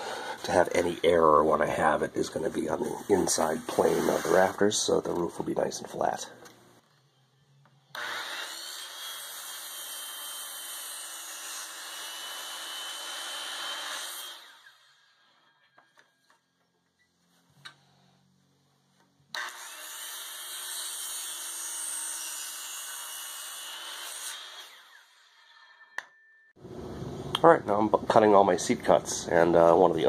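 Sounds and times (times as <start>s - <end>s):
circular saw cutting wood: 0.0s - 6.2s, 7.0s - 15.8s, 19.3s - 26.0s.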